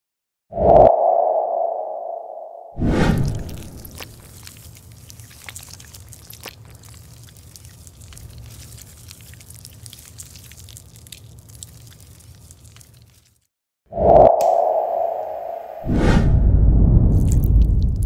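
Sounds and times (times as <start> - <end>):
cream squeezed from tube: 3.5 - 13.5.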